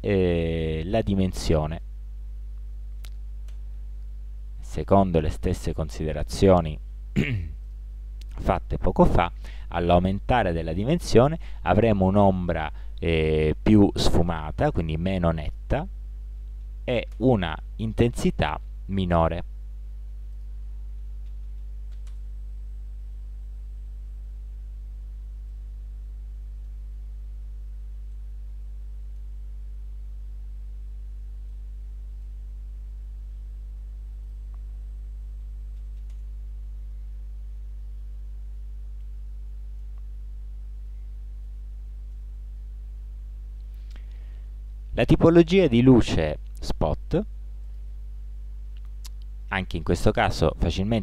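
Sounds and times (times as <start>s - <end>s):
electrical mains hum: 0.0s - 51.0s
faint click: 2.6s - 4.1s.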